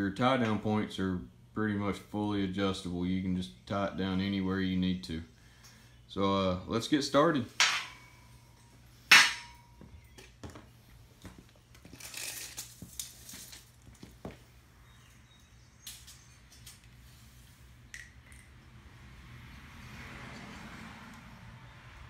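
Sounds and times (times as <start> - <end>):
metal channel clanking on concrete: 7.5 - 8.2
tape measure clicks and rustling: 11.8 - 13.8.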